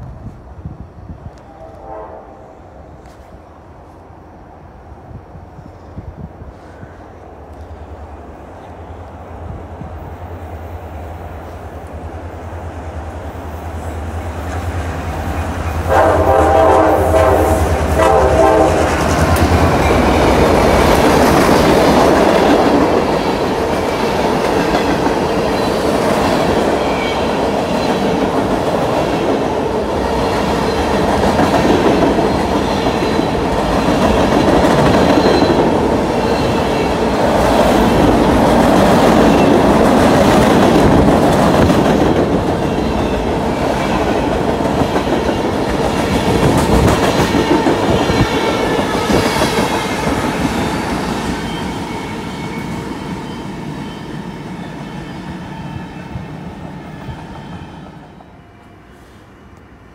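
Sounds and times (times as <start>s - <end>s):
train wheels rumbling on rails: 0.0s - 59.3s
train horn blast: 1.5s - 3.2s, 15.8s - 20.0s.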